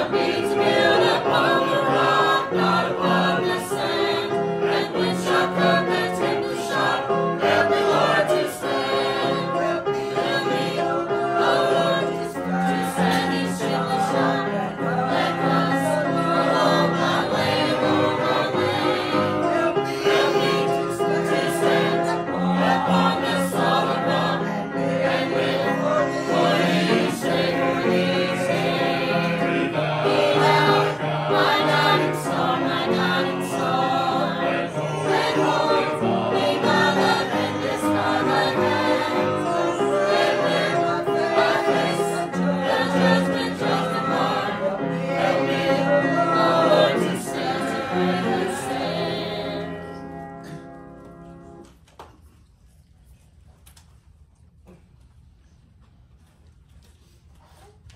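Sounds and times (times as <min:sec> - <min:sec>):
church choir singing a hymn: 0:00.0 - 0:51.6.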